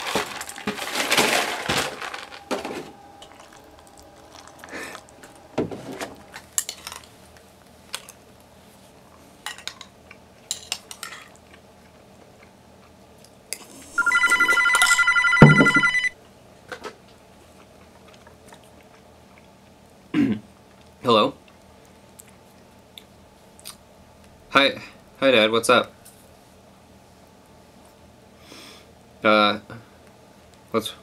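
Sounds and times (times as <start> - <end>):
telephone ringing loudly: 14.0 - 16.2.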